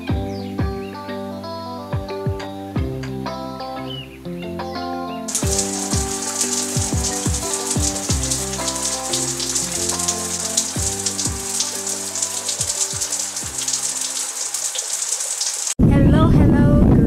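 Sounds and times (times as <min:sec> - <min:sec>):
music with sustained notes: 0:00.0 - 0:15.1
shower water spray hissing: 0:05.3 - 0:15.8.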